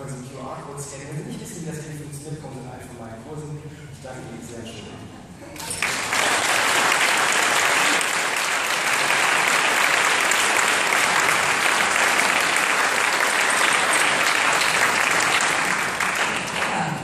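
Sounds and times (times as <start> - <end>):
large audience applauding: 5.6 - 17.0.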